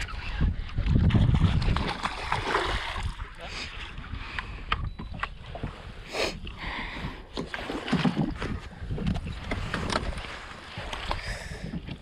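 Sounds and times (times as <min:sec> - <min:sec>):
wind buffeting microphone: 0:00.0 - 0:07.2, 0:07.8 - 0:12.0
fish splashing in water: 0:01.5 - 0:03.3.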